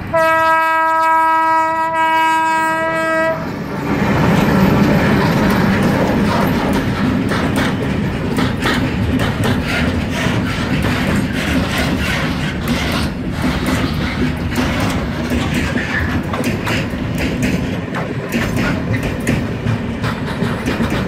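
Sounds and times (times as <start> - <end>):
train wheels rumbling on rails: 0.0 - 21.0
wheels clicking over rail joints: 3.4 - 21.0.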